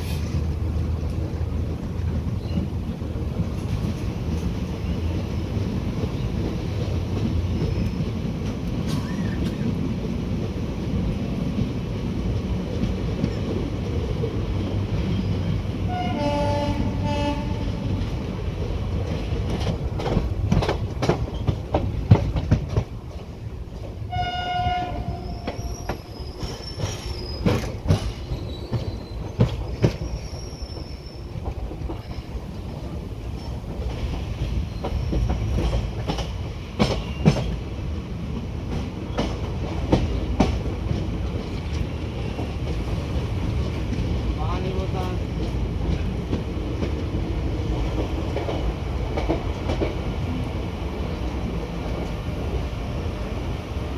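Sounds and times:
train wheels rumbling on track: 0.0 - 53.9
locomotive horn: 15.9 - 17.8, 24.1 - 25.6.

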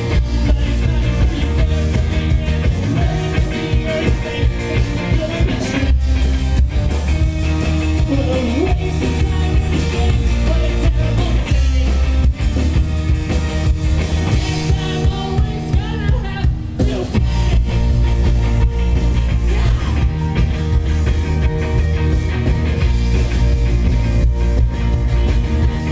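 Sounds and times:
person singing: 0.0 - 6.1, 7.9 - 12.3, 14.3 - 18.3, 19.2 - 20.4
drums: 0.0 - 25.9
electric guitars: 0.0 - 25.9.

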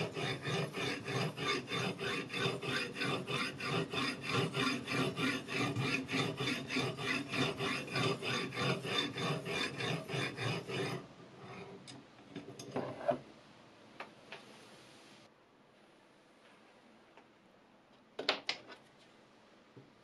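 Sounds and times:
whetstone rasping on knife edge: 0.0 - 11.0.

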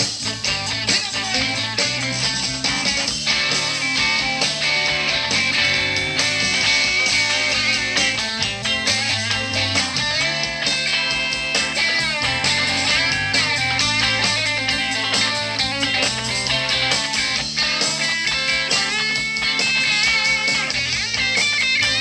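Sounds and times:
electric guitars: 0.0 - 22.0
steady drum beat: 0.0 - 22.0.

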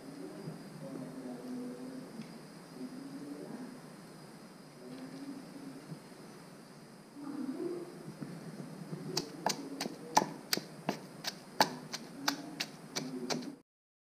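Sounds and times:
pestle pounding in a mortar: 9.2 - 13.6.

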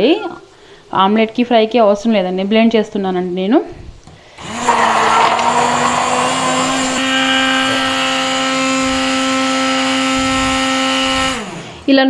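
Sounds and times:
electric hand blender whining: 4.4 - 11.8.

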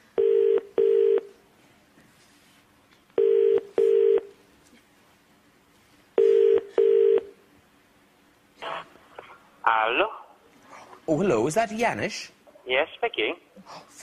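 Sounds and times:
telephone ringing tone: 0.2 - 1.3, 3.2 - 4.3, 6.2 - 7.3.

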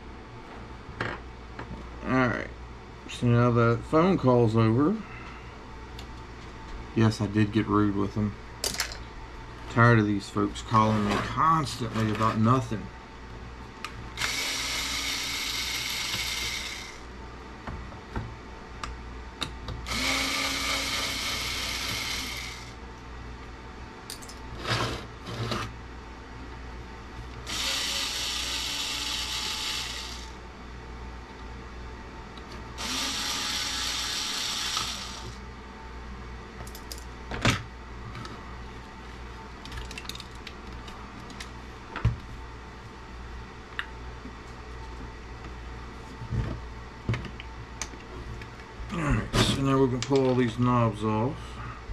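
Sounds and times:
electric screwdriver running: 14.2 - 17.0, 19.9 - 22.7, 27.4 - 30.4, 32.8 - 35.4.

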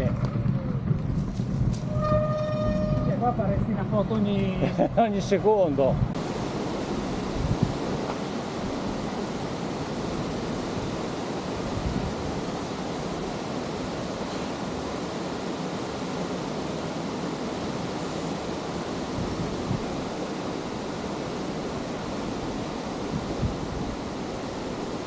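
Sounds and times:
waterfall rushing: 6.2 - 25.0.

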